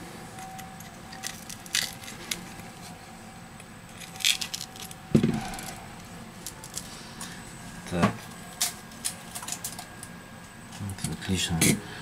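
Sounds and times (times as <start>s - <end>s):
cracked glass clinking and crunching: 0.4s - 2.4s, 3.9s - 5.0s.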